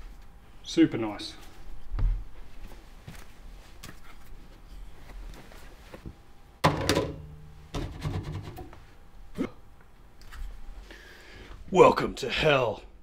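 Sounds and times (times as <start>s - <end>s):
faint handling noise: 1.3s - 6.3s
loud ringing thunk: 6.6s - 8.0s.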